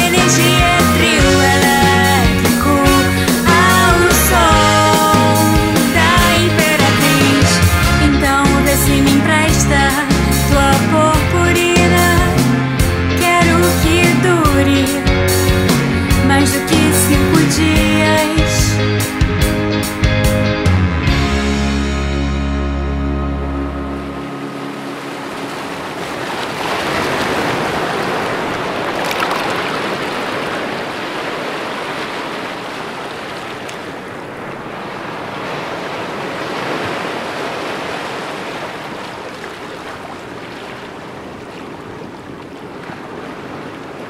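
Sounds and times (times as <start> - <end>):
surf washing onto shore: 23.9 - 44.0.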